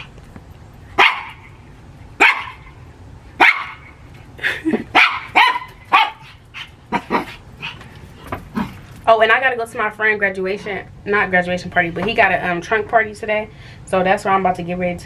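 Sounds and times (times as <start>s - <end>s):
small dog barking: 1.0s - 1.5s, 2.2s - 2.8s, 3.4s - 3.9s, 4.9s - 7.8s.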